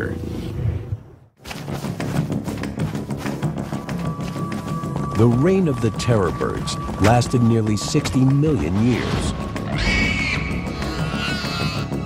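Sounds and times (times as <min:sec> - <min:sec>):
dramatic orchestral score: 0:03.9 - 0:12.0.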